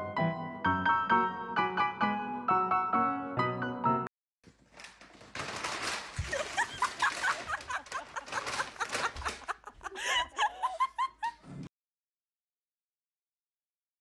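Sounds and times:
rustling: 4.5s - 9.8s
person laughing: 6.2s - 11.7s.

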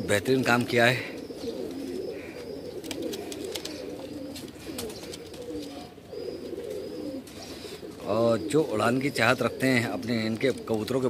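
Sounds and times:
pigeons cooing: 0.0s - 11.0s
faint clicks: 2.8s - 5.7s.

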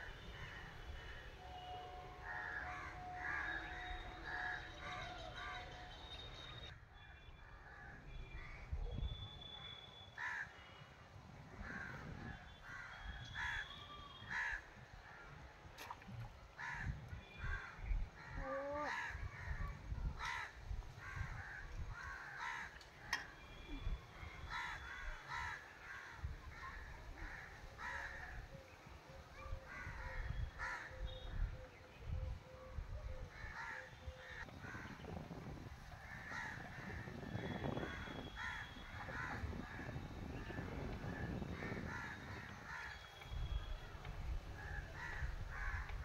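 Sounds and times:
crows cawing: 2.2s - 5.5s, 14.3s - 14.6s, 20.2s - 23.2s, 24.5s - 28.4s, 36.0s - 39.9s, 44.6s - 46.0s.

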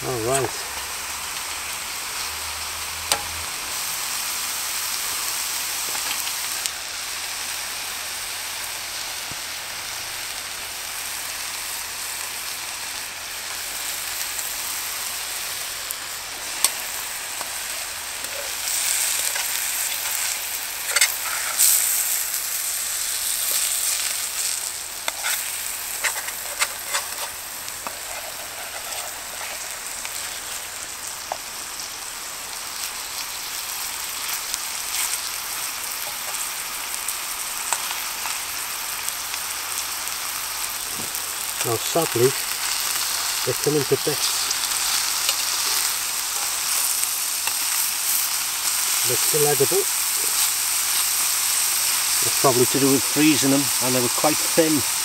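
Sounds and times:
burgers sizzling in frying pan: 0.0s - 55.0s
metal tongs scraping pan: 18.2s - 22.2s, 23.4s - 30.6s, 41.7s - 50.5s.

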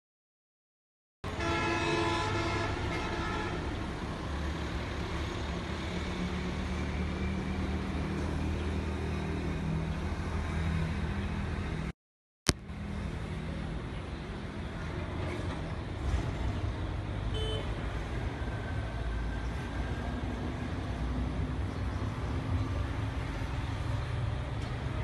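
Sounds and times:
hum of bus and rickshaw engines: 1.3s - 11.9s, 12.5s - 25.0s.

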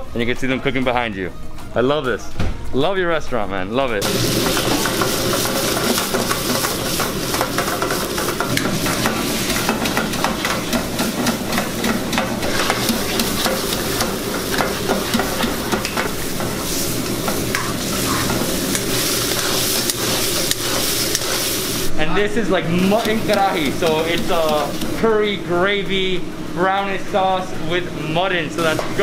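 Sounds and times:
meat sizzling in a pan: 4.0s - 21.9s
metal spatula scraping a pan: 16.4s - 21.8s.

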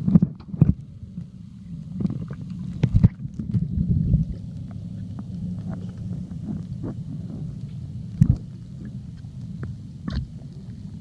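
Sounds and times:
underwater water rumble: 0.0s - 11.0s
knocks and gurgles: 8.2s - 9.0s.

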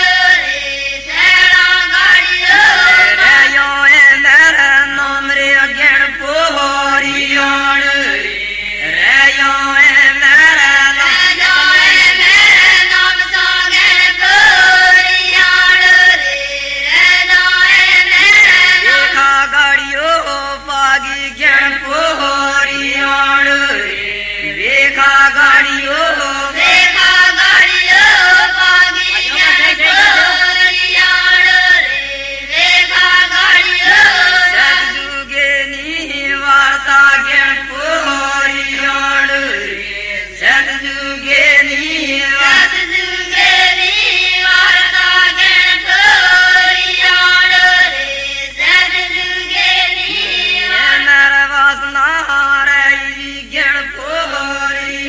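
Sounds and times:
group singing a chant: 0.0s - 55.0s.

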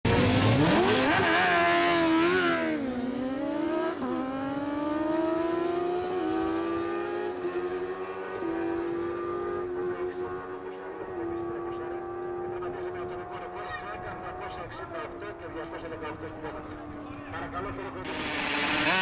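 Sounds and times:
motorcycles revving through gears: 0.1s - 13.6s, 18.0s - 19.0s.

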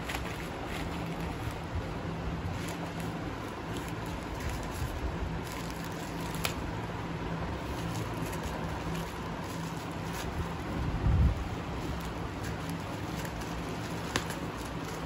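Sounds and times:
package rustling and clicking: 11.8s - 15.0s.

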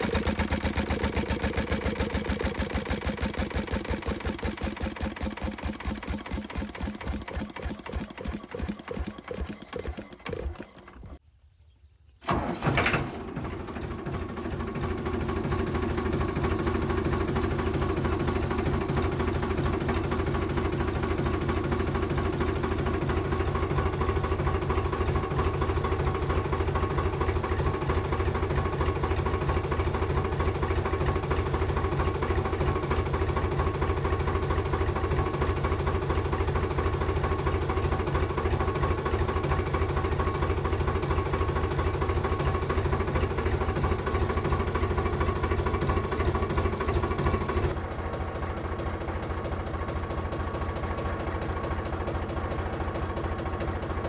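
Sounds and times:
small motor whining: 0.0s - 11.2s.

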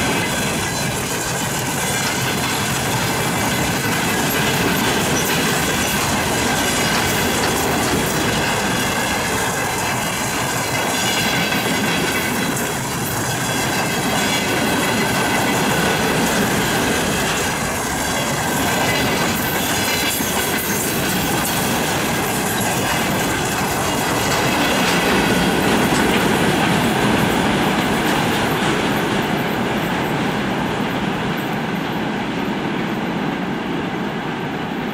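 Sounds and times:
train wheels clattering over rails: 0.0s - 34.9s.

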